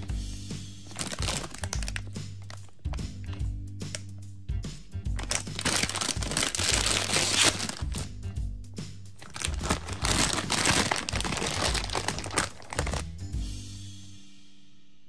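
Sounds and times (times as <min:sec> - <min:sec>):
background music with bass line: 0:00.0 - 0:14.9
plastic bag crinkling: 0:00.9 - 0:03.0, 0:05.2 - 0:08.1, 0:09.2 - 0:13.0.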